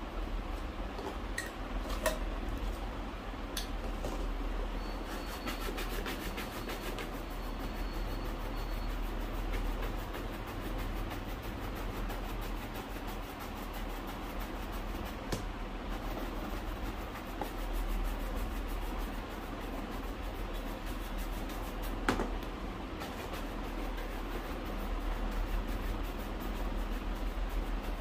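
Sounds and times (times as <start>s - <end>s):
brush scrubbing shoe: 5.0s - 22.1s, 22.9s - 28.0s.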